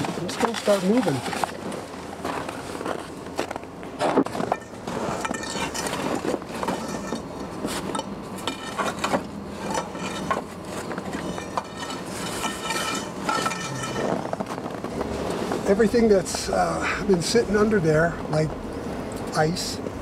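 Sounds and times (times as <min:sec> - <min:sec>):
metal poker clanking on logs: 0:04.3 - 0:14.4.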